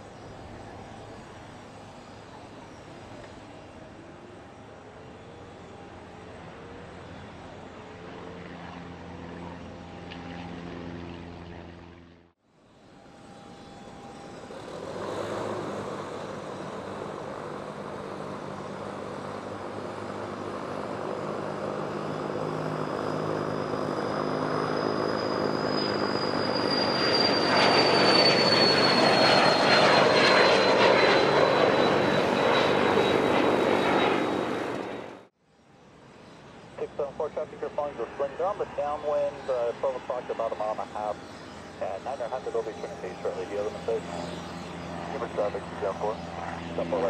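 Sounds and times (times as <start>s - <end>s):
jet turbine engines passing: 0.0s - 47.0s.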